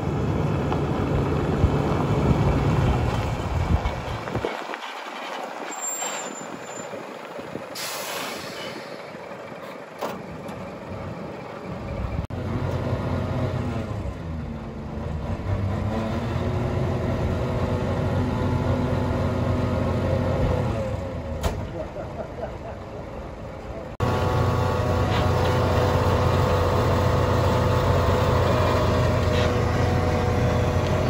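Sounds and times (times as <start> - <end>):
truck diesel engine: 0.0 - 31.0
air brake hiss: 7.8 - 9.2.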